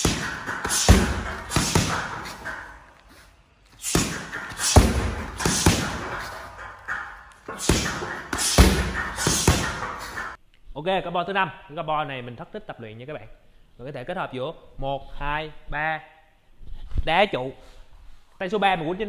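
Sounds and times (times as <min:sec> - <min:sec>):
strikes thudding on punching bag: 0:00.0 - 0:02.5, 0:03.9 - 0:06.4, 0:07.6 - 0:10.3.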